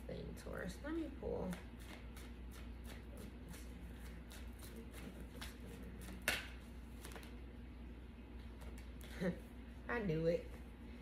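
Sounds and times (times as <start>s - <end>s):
cards being shuffled: 1.4s - 7.4s.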